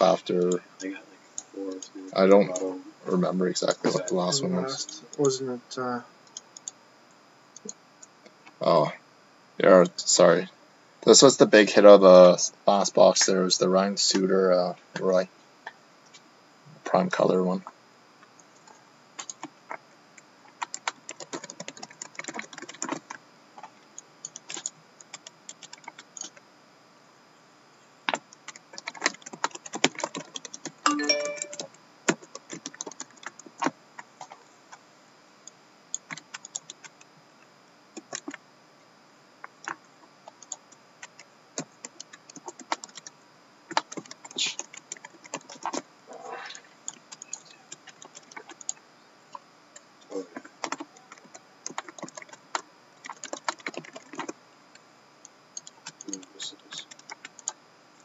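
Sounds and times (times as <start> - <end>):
computer keyboard typing: 18.5 - 19.8, 20.5 - 26.4, 28.1 - 34.4, 35.9 - 37.1, 38.0 - 38.4, 39.5 - 43.1, 43.7 - 45.8, 46.8 - 48.8, 50.4 - 54.4, 55.6 - 57.6
brief pitched tone: 30.9 - 31.7.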